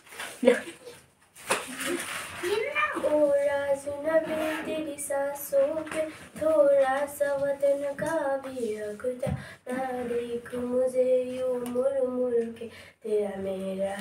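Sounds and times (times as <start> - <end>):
girl singing slowly: 3.0 - 14.0.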